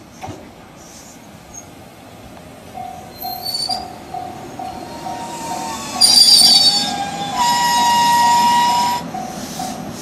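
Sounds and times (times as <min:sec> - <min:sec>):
electric train pulling in: 0:00.1 - 0:10.0
warning bell dinging: 0:02.8 - 0:07.9
wheel and brake squeal: 0:03.2 - 0:04.0, 0:04.8 - 0:09.8.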